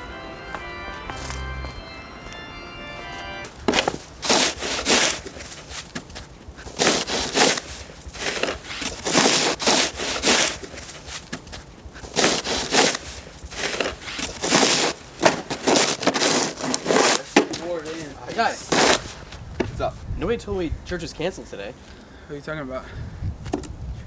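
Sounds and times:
snow shovels scraping on pavement: 3.6 - 19.3.

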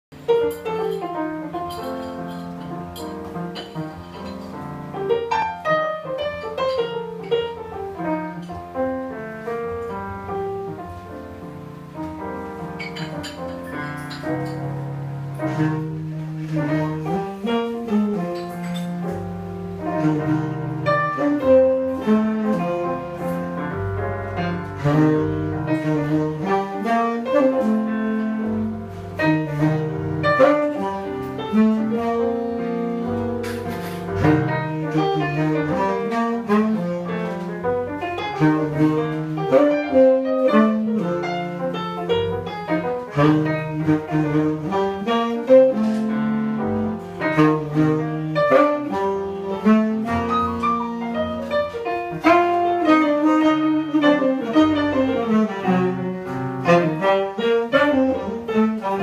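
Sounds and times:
keyboard piano playing jazz: 0.1 - 59.0
saxophone held notes: 12.6 - 59.0.

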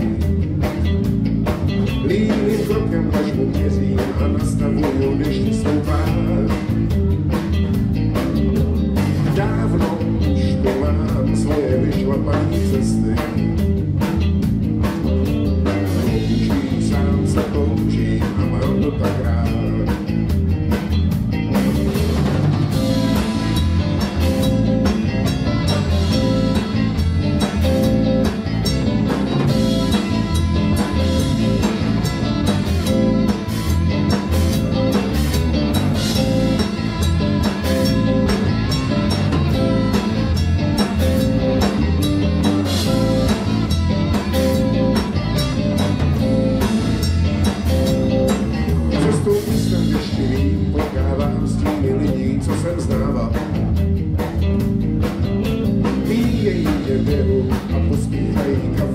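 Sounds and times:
man singing: 0.0 - 0.4, 1.9 - 7.1, 8.9 - 13.8, 15.5 - 20.4, 48.5 - 54.0, 55.4 - 58.9
bass guitar: 0.0 - 58.9
drum kit: 0.0 - 58.9
electric guitars: 0.0 - 58.9.

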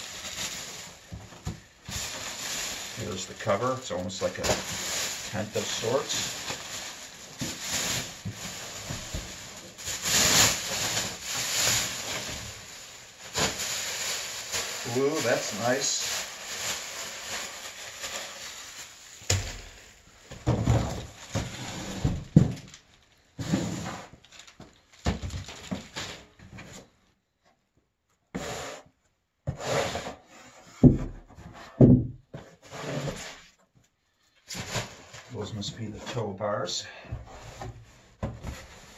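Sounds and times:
plastic sled handling noises: 0.0 - 18.4.

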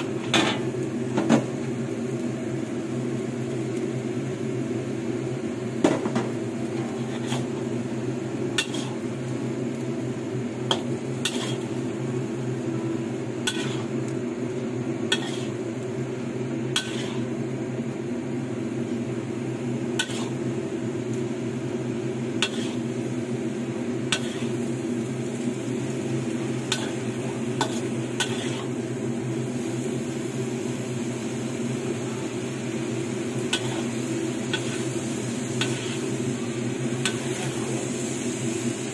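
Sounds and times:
utensil scraping a pan: 6.8 - 7.6, 8.6 - 9.0, 10.7 - 11.7, 13.5 - 13.9, 15.1 - 15.6, 16.8 - 17.3, 22.4 - 22.8, 24.1 - 24.6.

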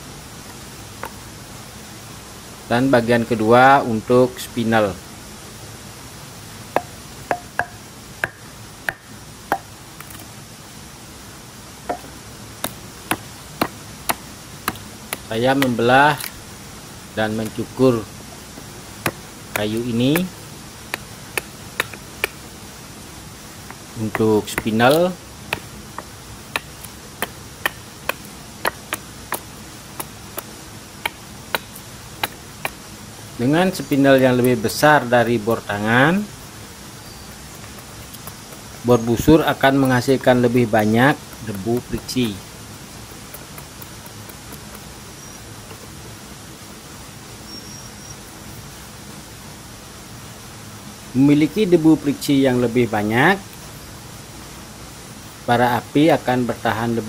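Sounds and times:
blade chopping wood: 6.8 - 10.2, 11.9 - 16.4, 18.6 - 22.4, 23.6 - 32.8, 37.6 - 42.4
knife shaving wood clicks: 19.0 - 22.4, 23.6 - 32.8, 37.5 - 42.4, 43.0 - 44.9.

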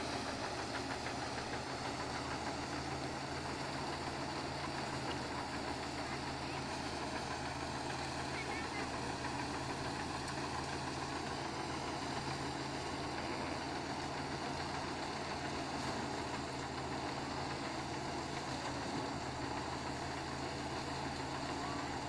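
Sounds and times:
engine drone: 0.0 - 22.0
threshing drum whirring: 0.0 - 22.0.

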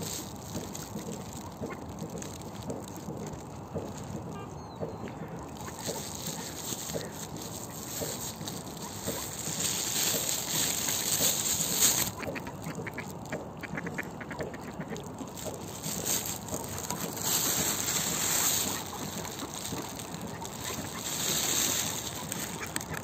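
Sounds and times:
ducks quacking: 12.0 - 15.0.

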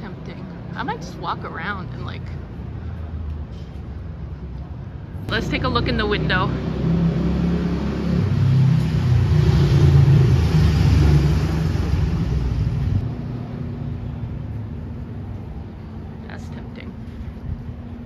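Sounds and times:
vehicle engine rumbling: 0.0 - 18.0.

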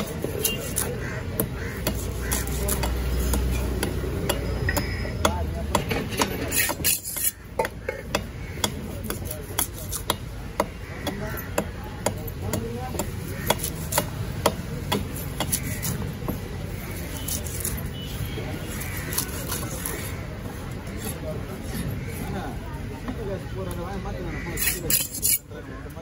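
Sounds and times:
knife chopping fish on wooden block: 0.0 - 17.7.

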